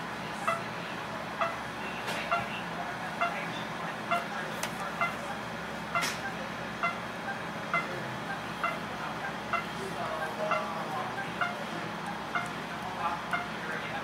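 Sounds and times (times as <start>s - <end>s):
low steady hum: 0.0s - 14.0s
patient monitor beeping: 5.9s - 14.0s.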